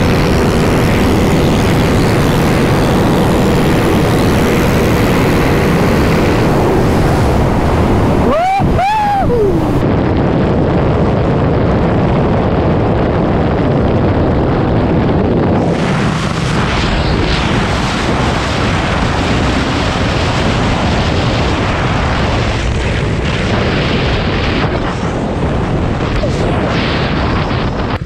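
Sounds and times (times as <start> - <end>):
motorcycle engine running: 0.0 - 8.7
wind buffeting microphone: 0.0 - 28.0.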